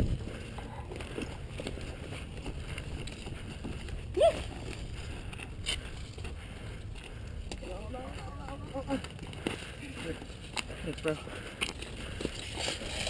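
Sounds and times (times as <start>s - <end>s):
wind buffeting microphone: 0.0s - 8.8s
footsteps on dry dirt: 0.0s - 13.0s
person shouting a call: 4.1s - 4.5s.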